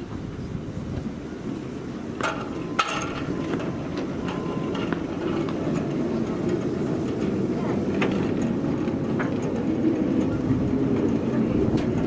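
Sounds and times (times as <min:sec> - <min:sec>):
turntable rumbling as it turns: 0:00.0 - 0:12.0
sharp metallic clanks: 0:02.2 - 0:08.6.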